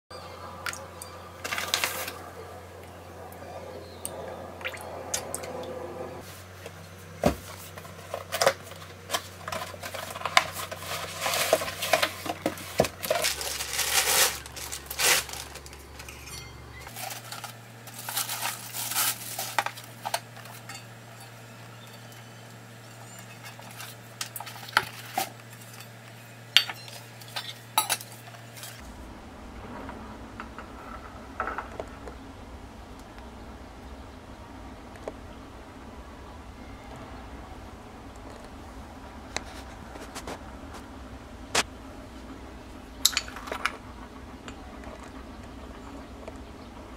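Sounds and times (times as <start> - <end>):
rustling and clattering: 6.2 - 22.0.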